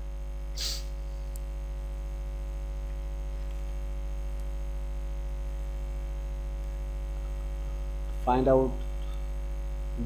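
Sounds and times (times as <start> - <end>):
electrical mains hum: 0.0 - 10.0
short hiss: 0.5 - 1.2.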